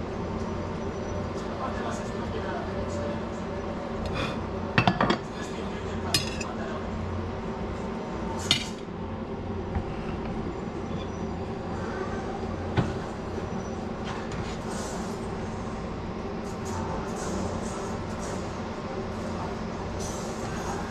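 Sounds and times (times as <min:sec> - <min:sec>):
steady low hum: 0:00.0 - 0:20.9
ceramic dishes and knife clinking: 0:04.8 - 0:05.3, 0:06.2 - 0:06.5.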